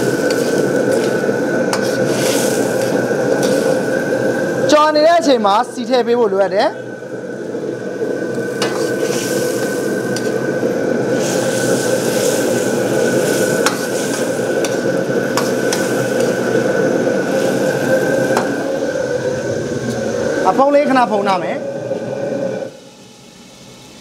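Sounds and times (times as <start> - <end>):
food sizzling in a wok: 0.0 - 24.0.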